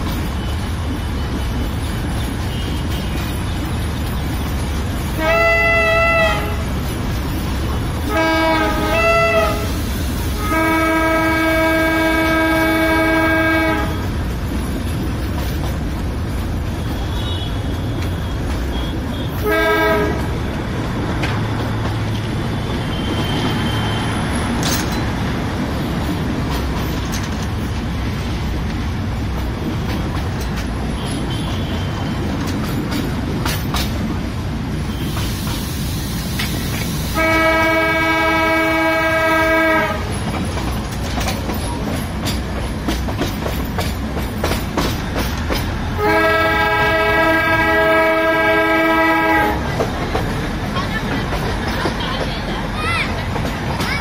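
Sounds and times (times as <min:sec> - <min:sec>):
rumble of train wheels: 0:00.0 - 0:54.0
train horn: 0:05.2 - 0:06.8, 0:08.0 - 0:14.1, 0:18.7 - 0:20.4, 0:37.1 - 0:40.2, 0:46.0 - 0:49.7.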